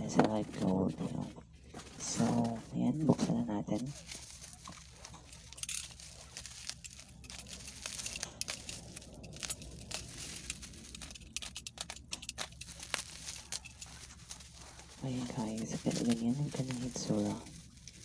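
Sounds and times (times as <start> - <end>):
bubble wrap crinkling: 0.0 - 18.0
small crackles and clicks: 3.8 - 18.0.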